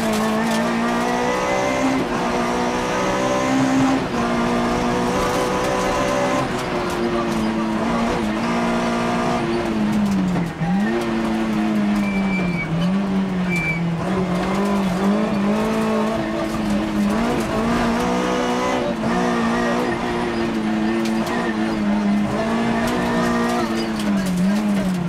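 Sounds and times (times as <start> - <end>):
rally car engine: 0.0 - 25.0
high tyre squeals: 10.4 - 11.3, 11.9 - 14.0, 23.1 - 24.2.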